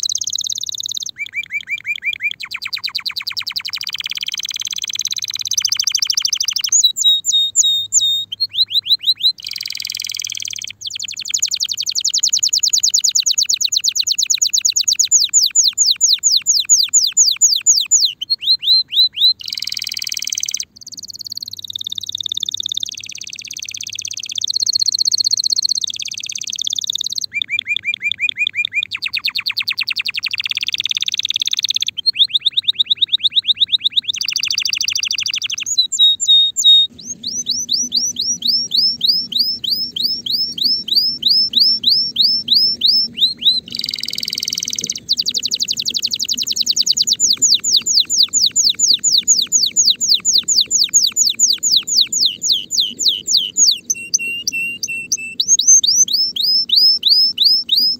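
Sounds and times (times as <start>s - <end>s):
canary singing trills: 0.0s - 57.9s.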